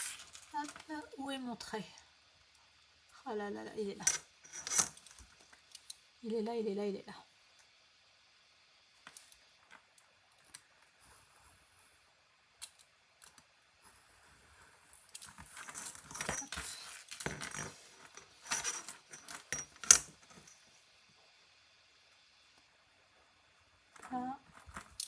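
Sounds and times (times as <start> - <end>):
metal ruler scraping and clattering: 4.1 - 5.1, 15.6 - 20.4.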